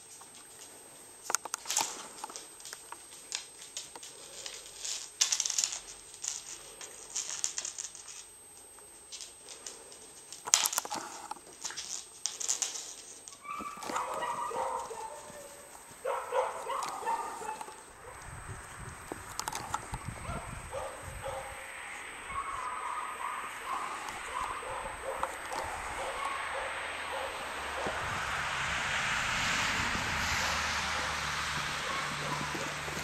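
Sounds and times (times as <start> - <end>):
puppy claws clicking on wooden floor: 0.2 - 17.9, 19.1 - 20.0
puppies barking and yapping: 11.0 - 28.7, 29.4 - 33.0.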